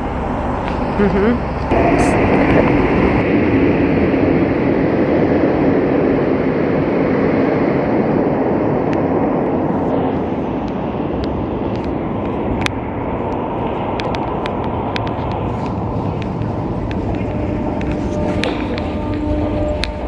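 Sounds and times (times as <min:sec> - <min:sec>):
train rumbling: 0:00.0 - 0:20.0.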